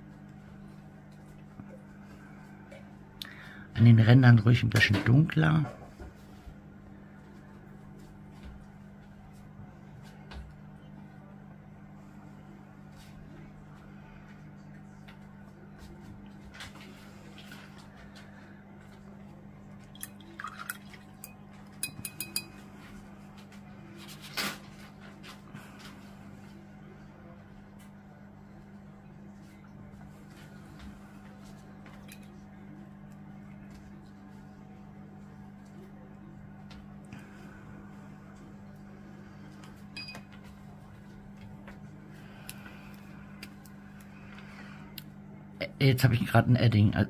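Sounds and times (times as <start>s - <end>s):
steady low hum: 0.0s - 47.0s
paintbrush clinking on glass jar: 21.8s - 22.6s.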